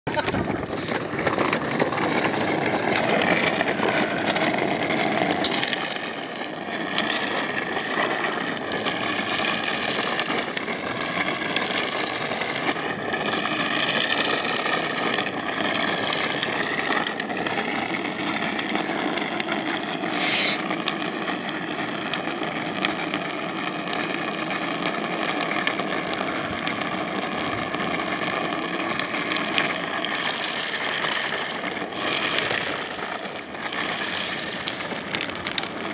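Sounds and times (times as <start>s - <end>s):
plastic wheels rumbling on asphalt: 0.0s - 35.9s
sharp hiss: 20.1s - 20.6s.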